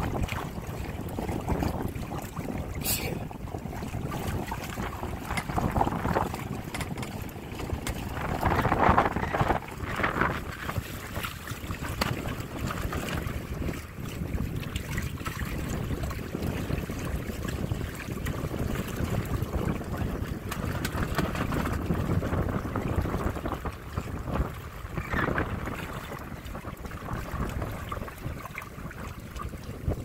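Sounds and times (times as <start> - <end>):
water rushing along hulls: 0.0 - 30.0
wind buffeting microphone: 0.0 - 30.0.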